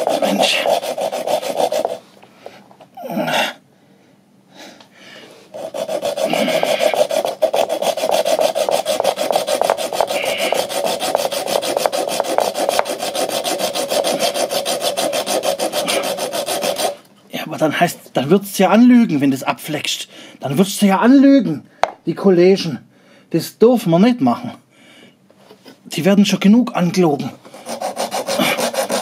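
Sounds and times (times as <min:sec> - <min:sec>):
hacksaw rasping through metal tube: 0:00.0 - 0:02.0, 0:05.5 - 0:17.0, 0:27.5 - 0:29.0.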